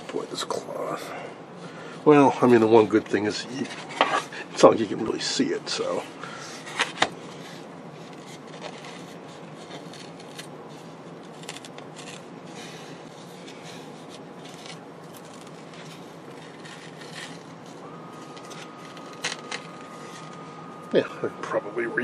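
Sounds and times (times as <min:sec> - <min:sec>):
cloth tearing and scratching off wood: 0:11.2 - 0:12.3, 0:14.1 - 0:17.7.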